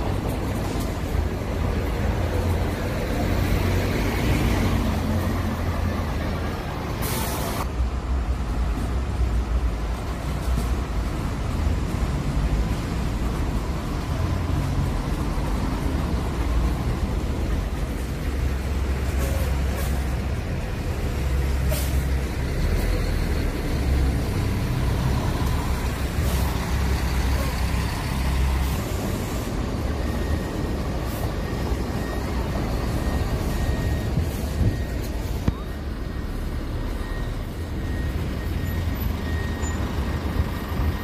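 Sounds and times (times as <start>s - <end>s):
bus engine rumble: 0.0s - 41.0s
air brake hisses: 7.0s - 7.6s, 21.6s - 22.1s.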